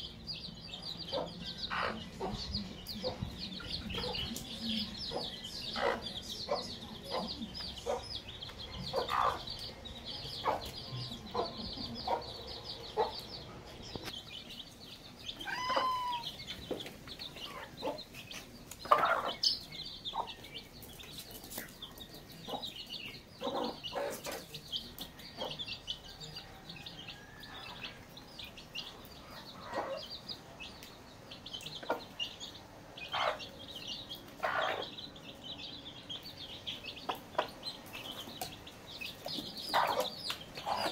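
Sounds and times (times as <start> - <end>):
chicks peeping: 0.0 - 40.9
hen clucking: 0.8 - 14.2, 15.2 - 20.5, 28.8 - 30.3, 33.0 - 35.2, 36.8 - 40.9.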